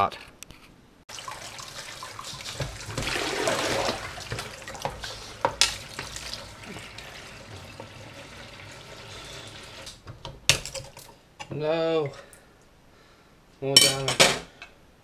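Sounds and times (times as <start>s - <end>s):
tap water splashing in a sink: 1.1s - 11.1s.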